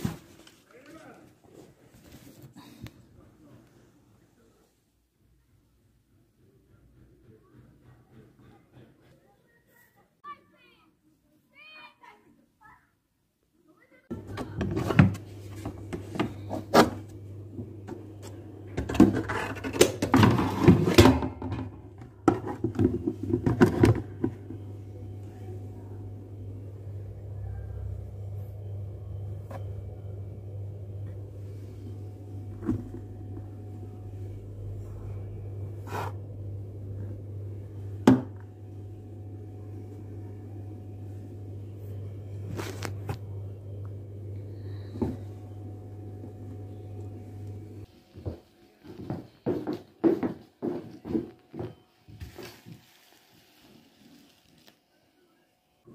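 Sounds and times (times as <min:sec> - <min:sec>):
steady low hum: 0:14.1 - 0:52.6
flour poured into plastic basin: 0:52.3 - 0:54.8.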